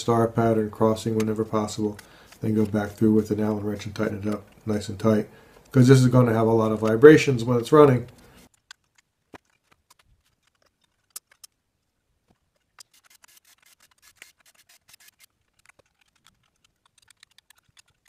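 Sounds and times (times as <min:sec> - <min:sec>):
metal parts clicking and rubbing: 0:08.0 - 0:11.6, 0:12.3 - 0:18.0.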